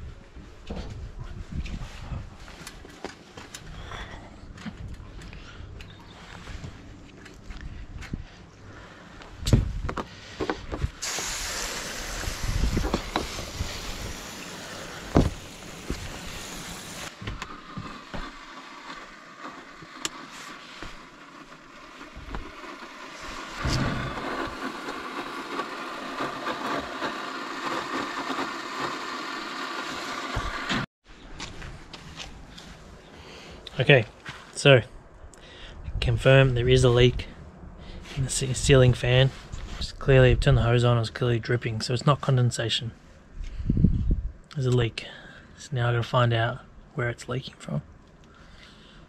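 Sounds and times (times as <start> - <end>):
hose water spraying on metal roof: 11.0 - 30.8.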